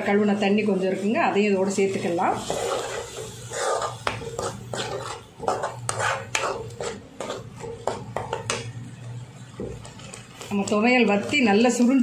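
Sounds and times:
metal ladle scraping metal pan: 1.0s - 8.6s.

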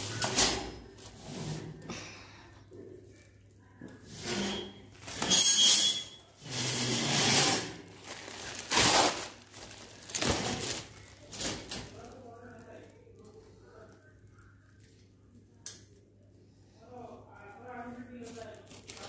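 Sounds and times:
plastic wrapping crinkling: 7.6s - 14.9s, 17.4s - 19.0s.

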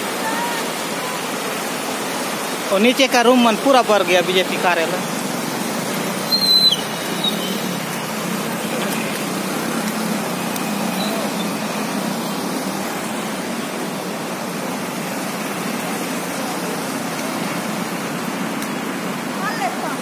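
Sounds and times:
floodwater rushing: 0.0s - 20.0s
brief high squeak: 6.3s - 7.6s.

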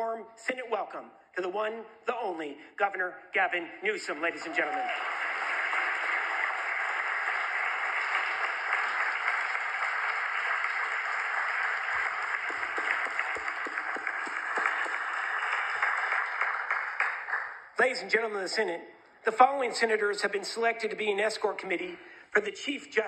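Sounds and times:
crowd applauding: 4.4s - 17.7s.

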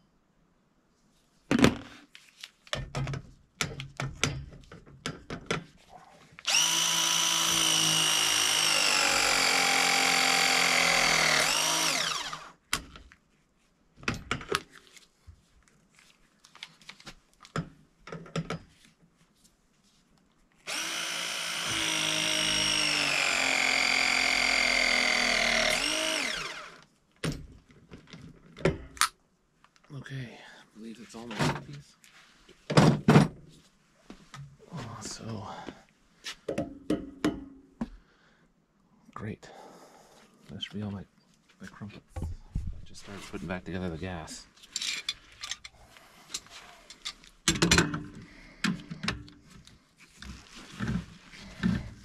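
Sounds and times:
press tool motor whirring: 6.5s - 12.5s, 20.7s - 26.8s.

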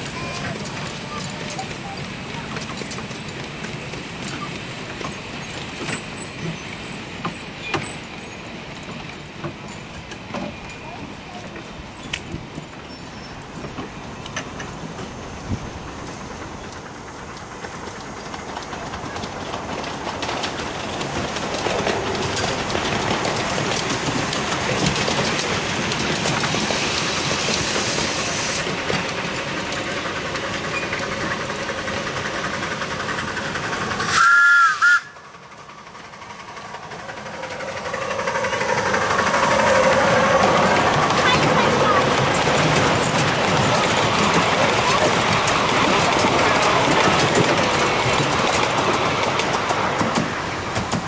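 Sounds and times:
miniature steam locomotive running: 0.0s - 51.0s
steam whistle: 34.1s - 35.2s.

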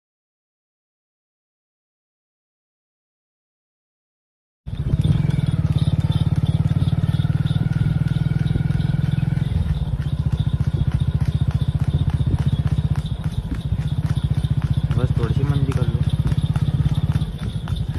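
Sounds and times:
motorcycle engine putter: 4.7s - 17.9s.

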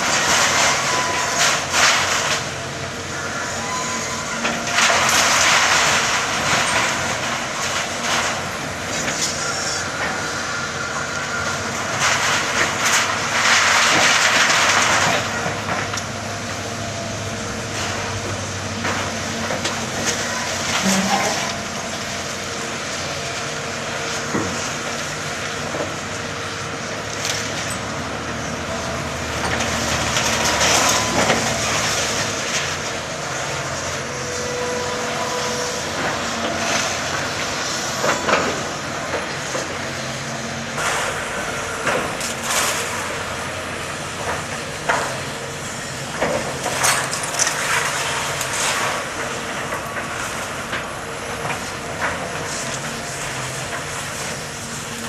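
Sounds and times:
debris crashing and clanking: 0.0s - 2.6s, 3.6s - 10.3s, 11.4s - 16.6s, 17.7s - 22.2s, 27.1s - 33.7s, 46.1s - 54.5s
excavator engine and hydraulics: 0.0s - 55.0s
brief squeal: 3.4s - 4.4s.

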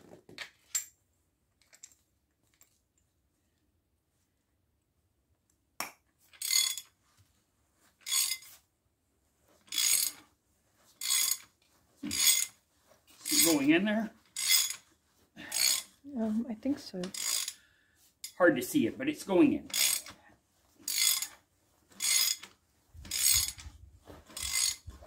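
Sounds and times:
ratchet wrench ratcheting: 8.0s - 8.4s, 9.7s - 10.2s, 11.0s - 11.5s, 12.1s - 12.5s, 13.2s - 13.6s, 14.4s - 14.8s, 15.5s - 15.9s, 17.1s - 17.6s, 19.7s - 20.2s, 20.9s - 21.4s, 22.0s - 22.5s, 23.1s - 23.7s, 24.4s - 24.8s.

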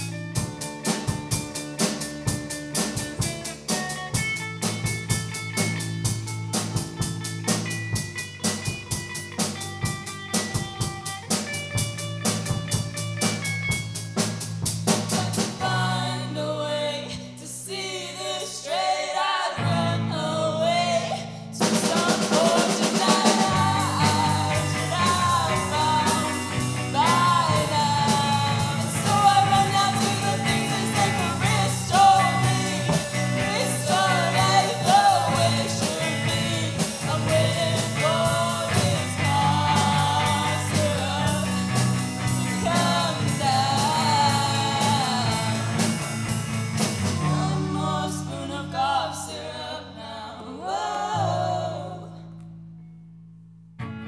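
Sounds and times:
drum kit: 0.0s - 16.0s, 21.6s - 48.0s
electric guitar: 0.0s - 16.0s, 19.6s - 49.0s, 53.8s - 54.0s
bass guitar: 0.0s - 18.5s, 19.5s - 54.0s
woman singing: 15.1s - 46.0s, 47.0s - 52.3s.

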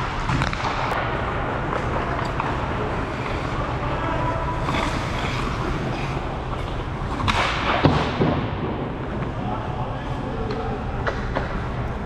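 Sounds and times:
hockey stick or puck clack: 0.1s - 1.1s, 1.7s - 3.4s, 10.5s - 11.7s
skate blades scraping ice: 1.6s - 7.6s.

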